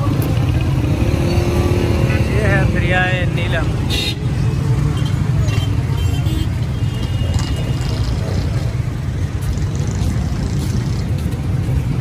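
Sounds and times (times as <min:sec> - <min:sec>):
passing vehicles rumble: 0:00.0 - 0:12.0.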